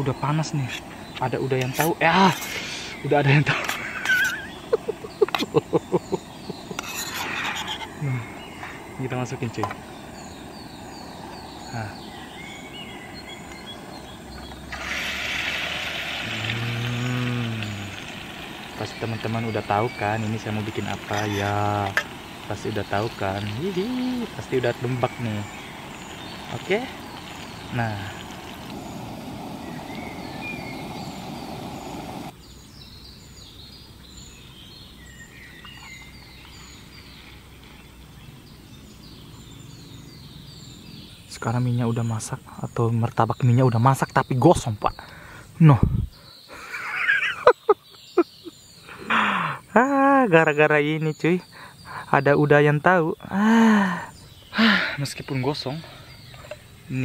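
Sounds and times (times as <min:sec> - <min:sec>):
faint bird chirps: 0:00.0 - 0:57.0
batter sizzling in hot oil: 0:13.2 - 0:32.4.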